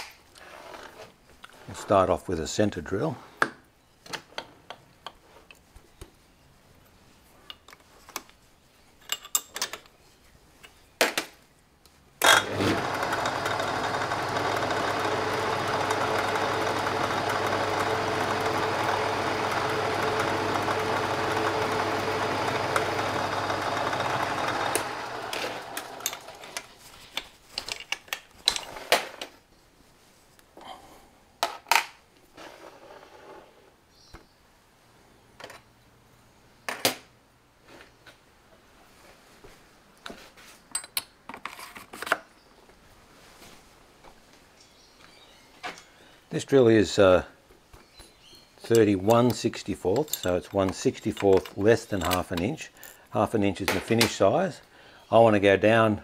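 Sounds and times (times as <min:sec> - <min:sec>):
metal lathe running: 0:12.4 - 0:26.4
metallic tool clicks and knocks: 0:48.7 - 0:52.5.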